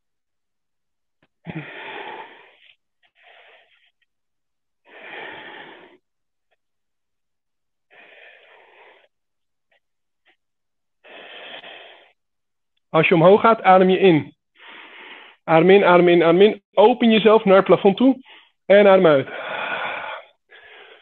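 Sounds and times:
person breathing heavily: 1.4s - 4.1s, 4.8s - 6.1s, 7.9s - 9.2s, 11.0s - 12.2s, 14.5s - 15.5s, 18.2s - 21.0s.

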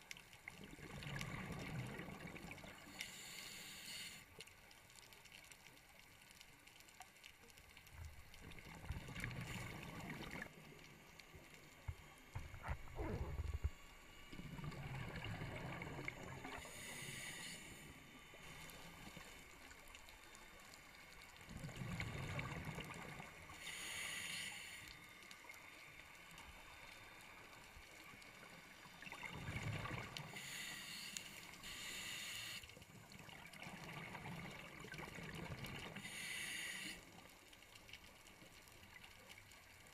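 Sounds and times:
exhaled bubbles underwater: 0.5s - 2.9s, 8.1s - 10.8s, 11.9s - 17.1s, 21.4s - 23.5s, 29.0s - 30.5s, 33.0s - 36.2s
regulator inhalation hiss: 2.9s - 4.3s, 16.6s - 19.0s, 23.6s - 25.0s, 30.3s - 32.7s, 36.0s - 37.1s.

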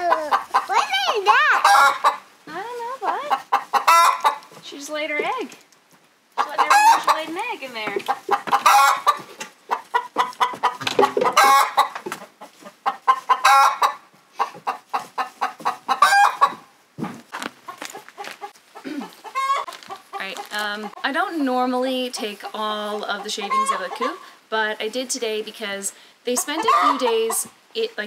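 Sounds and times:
hen cackling: 0.0s - 2.3s, 3.0s - 4.5s, 6.4s - 7.4s, 8.1s - 16.6s, 18.4s - 21.0s, 23.1s - 24.2s, 26.4s - 27.5s.

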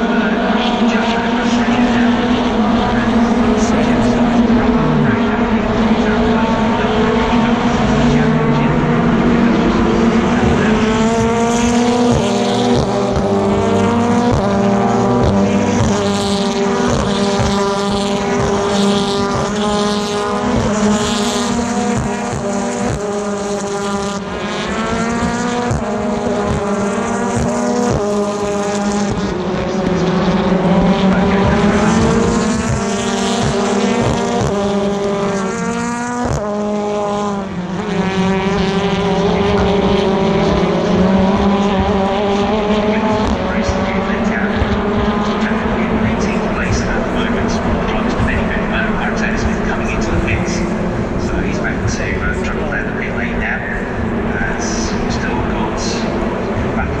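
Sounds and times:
racing cars accelerating: 0.0s - 57.0s.

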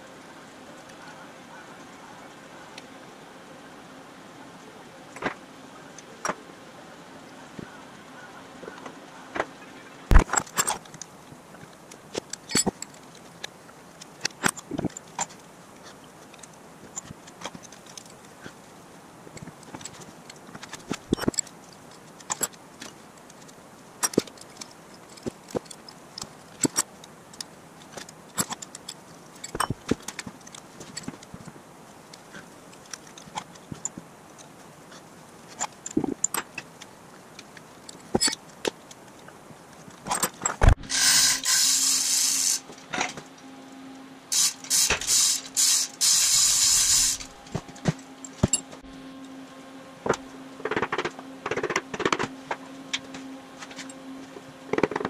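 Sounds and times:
mechanical whirring with hum: 0.0s - 55.0s.

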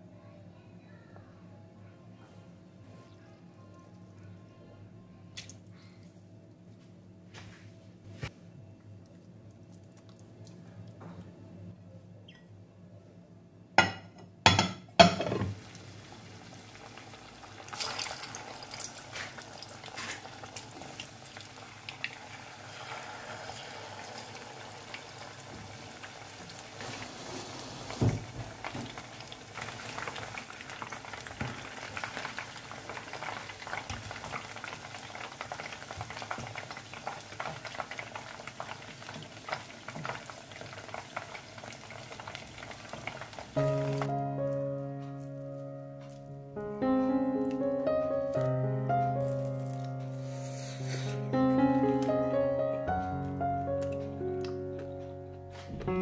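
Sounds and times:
chicken deep-frying in oil: 14.5s - 44.1s.

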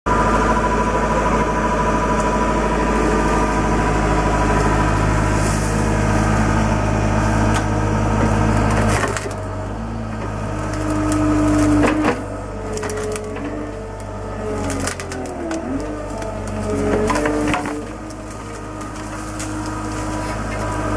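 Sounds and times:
loader engine running: 0.1s - 20.9s
wood cracking and splintering: 8.6s - 9.5s, 10.2s - 20.9s.

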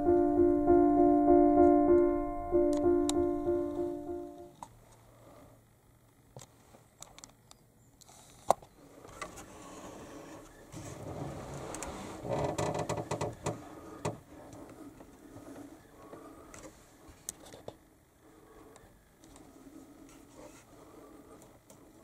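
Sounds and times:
rustling and scraping: 8.1s - 17.7s, 19.3s - 21.9s.

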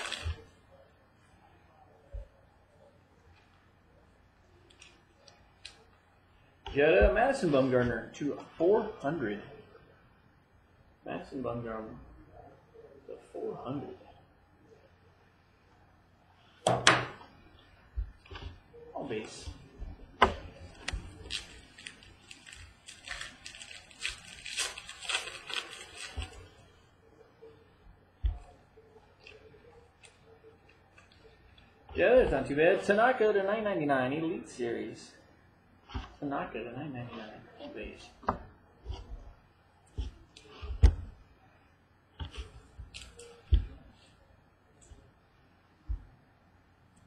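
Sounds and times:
foil wrappers crinkling: 0.0s - 0.6s, 20.6s - 26.8s, 42.5s - 44.1s.

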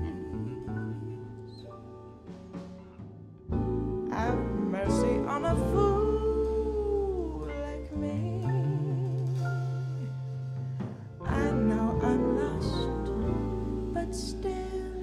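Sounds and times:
drums: 0.0s - 15.0s
electric bass: 0.0s - 15.0s
woman singing with vibrato: 4.1s - 9.8s, 11.3s - 15.0s.

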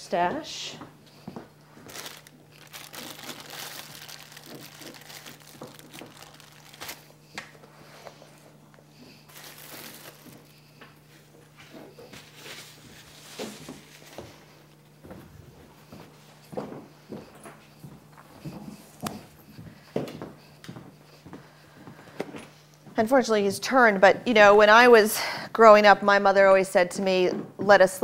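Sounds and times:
dog gnawing a bone: 2.0s - 7.3s.

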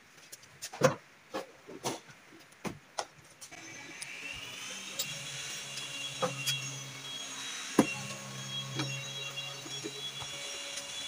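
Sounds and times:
motor running with hum and whine: 3.5s - 11.0s.

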